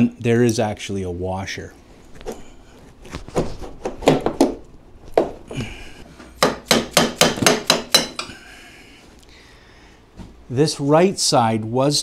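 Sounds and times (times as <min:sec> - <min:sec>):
hammer striking metal: 0:06.4 - 0:08.3.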